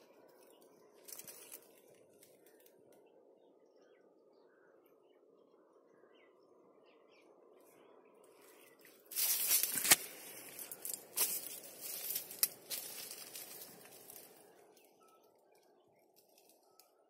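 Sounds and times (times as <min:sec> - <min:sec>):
leaves rustling against microphone: 0:00.3 - 0:02.7, 0:08.3 - 0:16.8.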